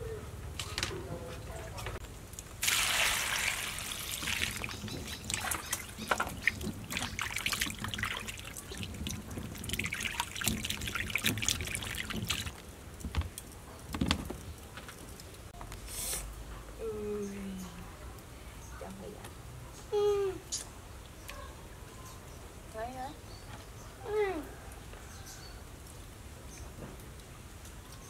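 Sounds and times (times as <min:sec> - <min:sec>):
water pouring: 0:02.5 - 0:15.4
hands splashing in water: 0:02.6 - 0:12.5.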